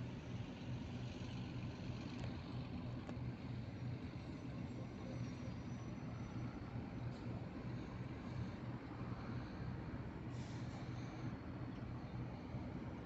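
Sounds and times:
distant airliner engines rumbling: 0.0s - 13.0s
faint engine hiss: 0.0s - 13.0s.

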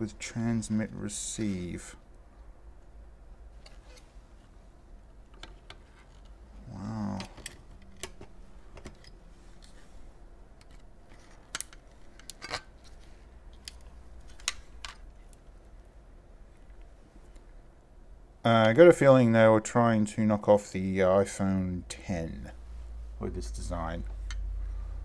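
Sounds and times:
plastic parts clicking: 10.6s - 15.4s.

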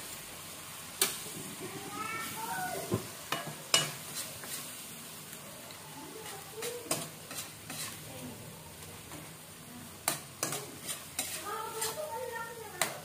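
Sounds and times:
food sizzling in a wok: 0.0s - 13.0s
spatula scraping a wok: 1.0s - 5.2s, 6.1s - 9.1s, 9.9s - 13.0s
spatula clicking against pan: 6.6s - 7.9s, 10.0s - 12.0s, 12.8s - 13.0s.

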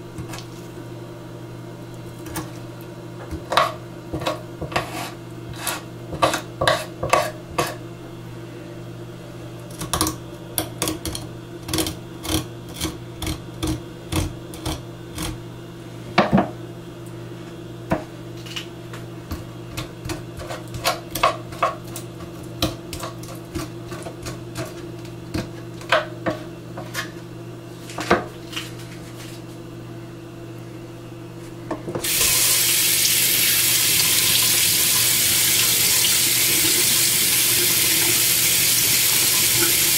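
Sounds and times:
knife scraping fish scales: 4.7s - 7.8s
tap water running into sink: 32.0s - 39.9s.

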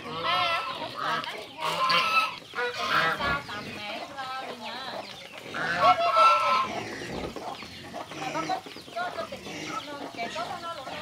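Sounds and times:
flock of poultry calling: 0.0s - 11.0s.

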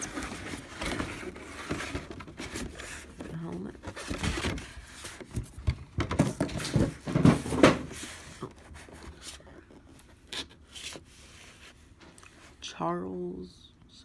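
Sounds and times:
plastic case knocks and rubbing: 5.3s - 8.0s.

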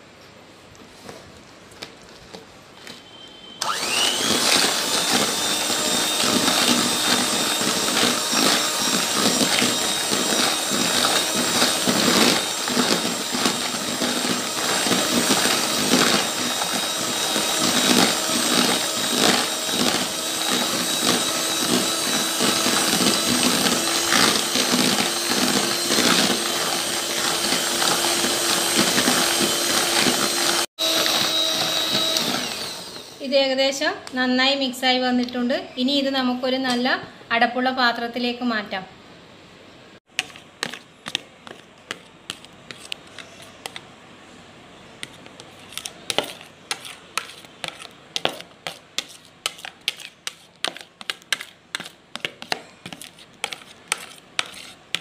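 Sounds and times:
electric hand mixer whine: 3.6s - 33.3s.

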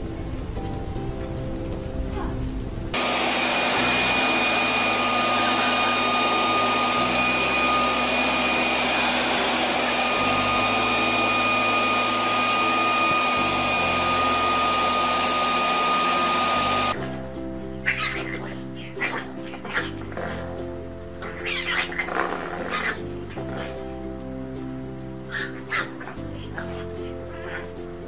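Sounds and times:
electric fan whooshing: 0.0s - 17.0s
high-pitched whine: 3.0s - 17.0s.

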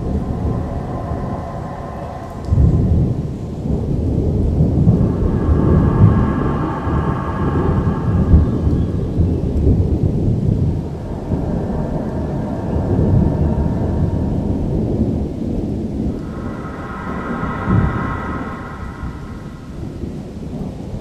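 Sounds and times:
thunder rumbling: 0.0s - 21.0s.

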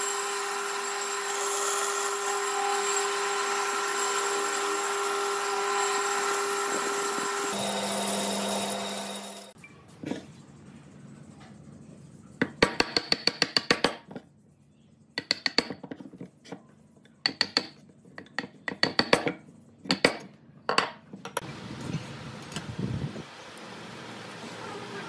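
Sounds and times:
chisel tapping into wood: 12.4s - 14.2s, 15.2s - 16.0s, 17.2s - 19.3s.

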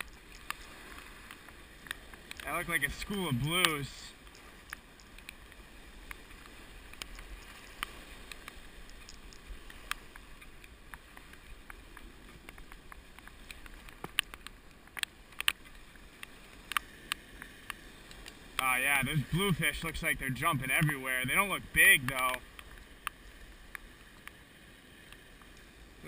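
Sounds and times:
sharp ticks and taps: 0.0s - 18.7s
waves washing against rocks: 0.0s - 23.8s.

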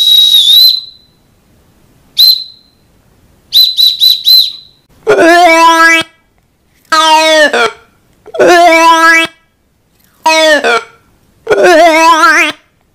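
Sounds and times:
high whistle blasts: 0.0s - 1.2s, 2.2s - 2.8s, 3.5s - 4.8s.

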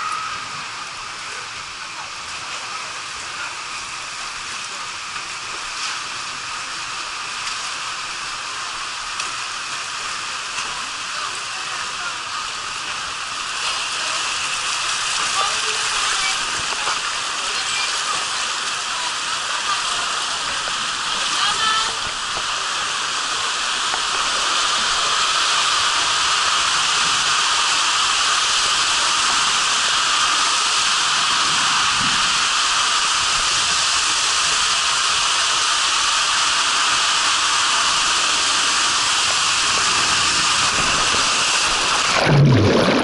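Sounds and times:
water rushing down slide tube: 0.0s - 43.0s
big water splash: 38.9s - 43.0s.

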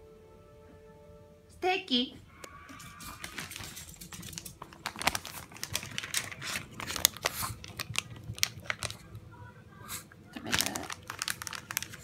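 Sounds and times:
plastic pouch crinkling: 2.8s - 9.1s, 10.4s - 12.0s.

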